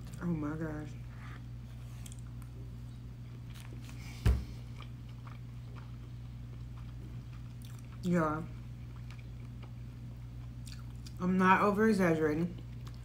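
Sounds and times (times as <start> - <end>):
steady low hum: 0.0 - 13.0
person chewing food: 1.0 - 11.2, 12.6 - 13.0.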